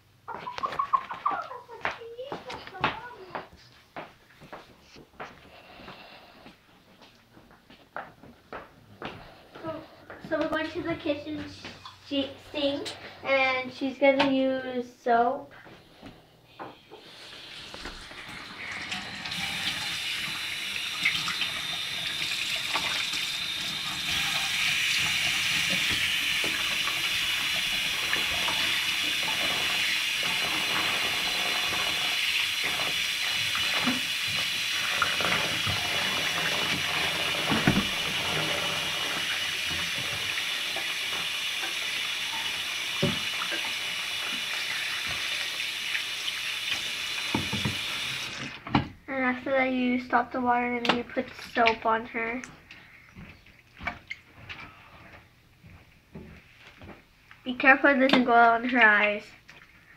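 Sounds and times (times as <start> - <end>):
tap running into plastic tub: 17.7 - 48.9.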